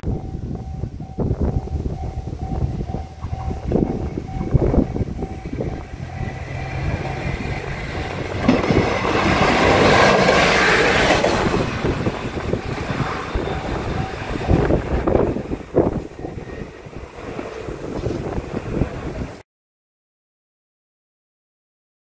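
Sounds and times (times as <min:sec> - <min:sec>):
crossing warning bell ringing: 0:00.0 - 0:17.6
railcar rolling over rails: 0:00.1 - 0:19.4.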